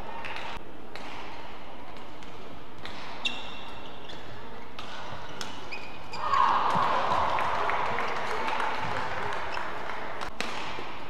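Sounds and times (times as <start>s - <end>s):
racket hitting shuttlecock: 0.2s - 5.8s, 10.3s - 11.0s
shoes squeaking on court: 2.8s - 6.3s
crowd noise: 6.2s - 10.4s.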